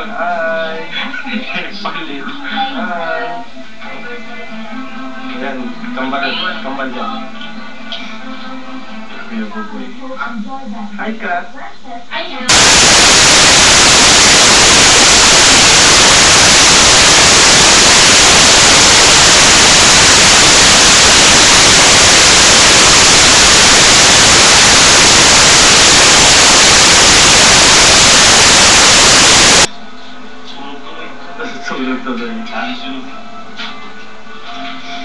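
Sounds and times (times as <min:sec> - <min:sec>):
loud static hiss: 0:12.5 - 0:29.7.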